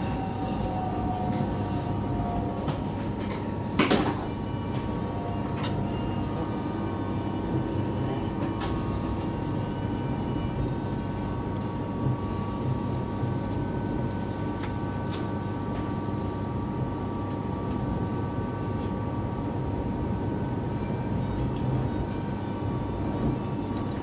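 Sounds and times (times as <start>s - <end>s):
thin steady whine: 0.0s - 24.0s
train running rumble: 0.0s - 24.0s.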